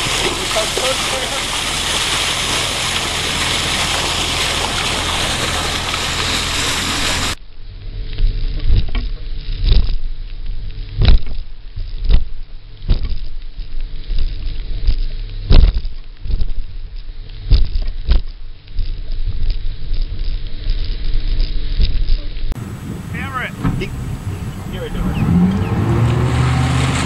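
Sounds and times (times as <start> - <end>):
boat engine droning: 0.0 - 7.4, 22.6 - 27.0
water rushing past boat bow: 0.0 - 7.4, 22.6 - 27.0
wind buffeting: 0.0 - 7.4, 22.6 - 27.0.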